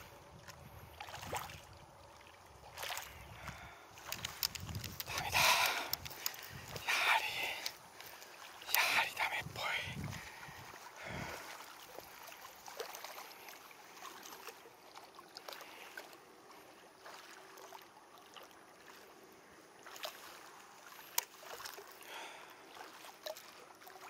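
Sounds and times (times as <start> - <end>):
water lapping against hull: 0.0 - 24.0
small ticks: 4.0 - 9.4.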